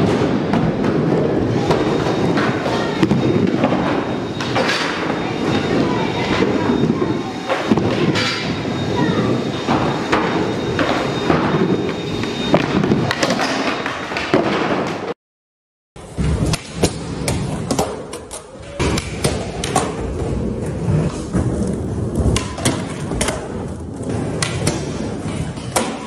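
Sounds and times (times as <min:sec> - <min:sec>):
skateboards rolling on concrete: 0:16.0 - 0:26.0.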